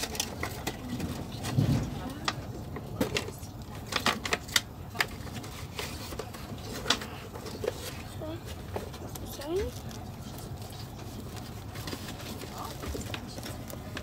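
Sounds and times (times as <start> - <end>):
train rumbling: 0.0 - 4.4.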